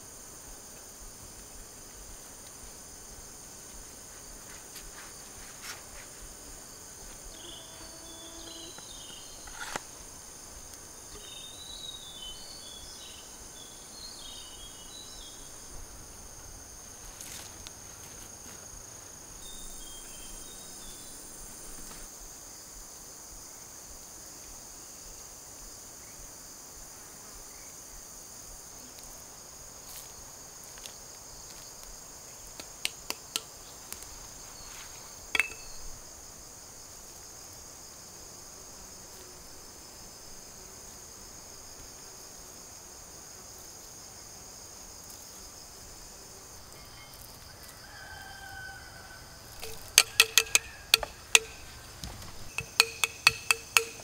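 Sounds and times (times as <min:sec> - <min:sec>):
insects chirring: 0:00.0 - 0:54.0
sharp clicks and taps: 0:49.6 - 0:51.6, 0:52.5 - 0:54.0.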